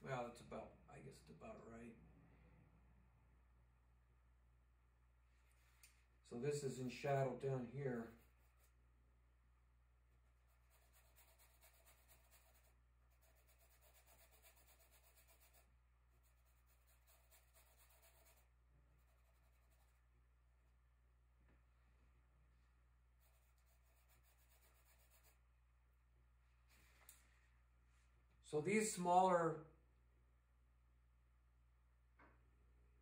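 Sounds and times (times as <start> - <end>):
faint low hum: 0.0 - 28.4
paintbrush scratching on canvas: 5.4 - 5.8, 7.9 - 8.8, 10.2 - 20.1, 23.2 - 25.4.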